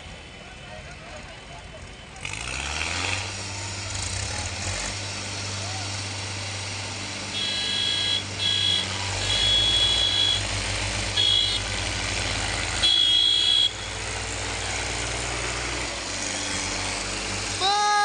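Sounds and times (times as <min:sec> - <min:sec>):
tractor diesel engines running: 0:00.0 - 0:18.0
vehicle horn honking: 0:07.3 - 0:10.5, 0:11.2 - 0:11.8, 0:12.7 - 0:14.0.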